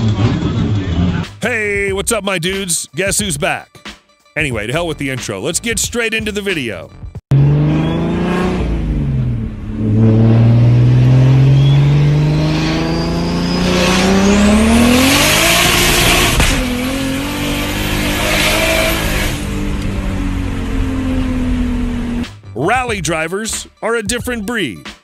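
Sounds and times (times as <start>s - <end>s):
car engine accelerating: 0.0s - 1.4s, 7.3s - 22.5s
gear shift crack: 14.0s - 22.3s.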